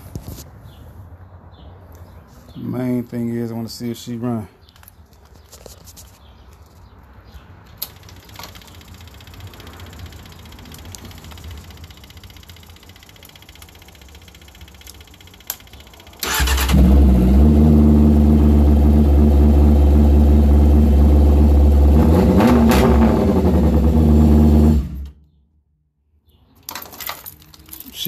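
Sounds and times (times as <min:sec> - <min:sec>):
motorcycle engine starting and idling: 0:07.7 - 0:25.2.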